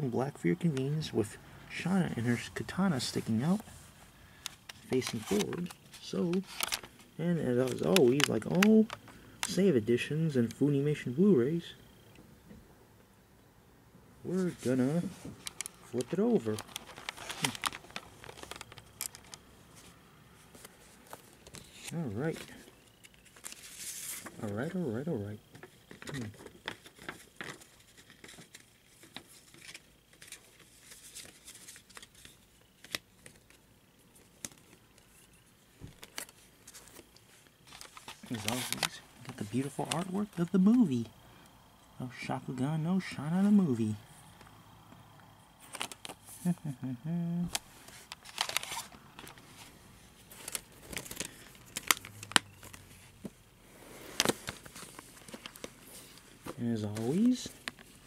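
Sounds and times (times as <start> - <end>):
case clicks and packaging rustles: 4.4 - 9.6, 14.6 - 19.9, 25.4 - 41.0, 45.6 - 46.3, 47.5 - 53.4, 54.1 - 58.0.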